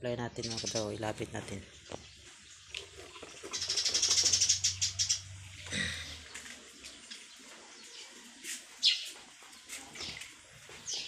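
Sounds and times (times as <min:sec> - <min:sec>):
bird chirping trill: 0:00.3 - 0:01.1, 0:03.5 - 0:05.4.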